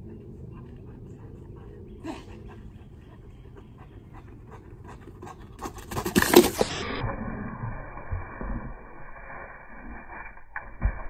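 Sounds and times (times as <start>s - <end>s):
dog panting: 0.0s - 6.7s.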